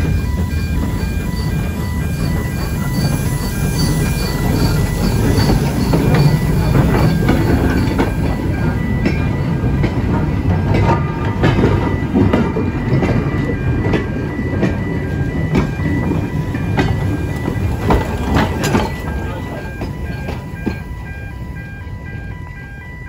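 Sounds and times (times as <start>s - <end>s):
train wheels clicking over rail joints: 0.0s - 22.9s
level crossing warning beeps: 0.0s - 23.0s
steam locomotive rumbling: 0.0s - 23.0s.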